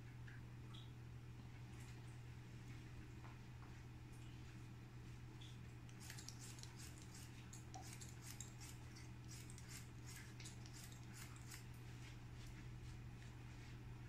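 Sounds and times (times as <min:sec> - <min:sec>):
steady low hum: 0:00.0 - 0:14.0
scissors snipping hair: 0:05.9 - 0:11.8.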